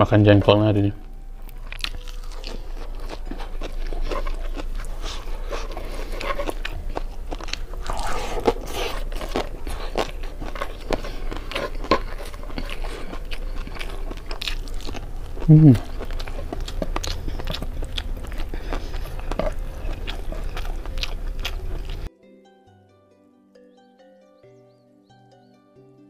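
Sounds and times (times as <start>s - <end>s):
chewing crunchy food: 1.4s - 22.1s.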